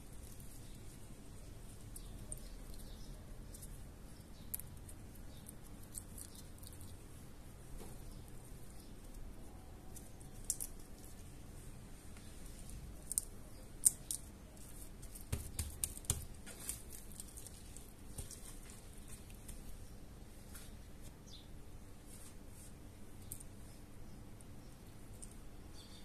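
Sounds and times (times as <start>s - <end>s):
hands squishing raw meat: 0.0s - 8.4s
sharp clicks and smacks: 1.7s - 7.0s, 12.9s - 19.8s.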